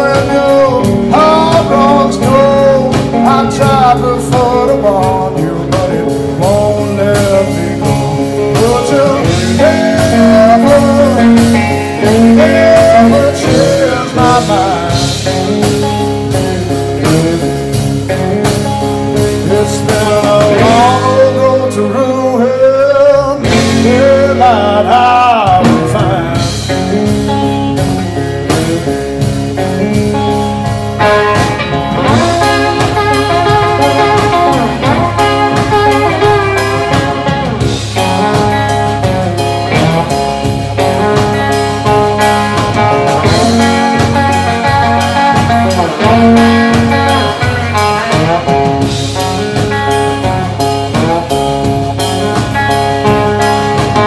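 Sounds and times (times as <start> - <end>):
electric guitar bending notes: 0.0 - 54.0
live blues band: 0.0 - 54.0.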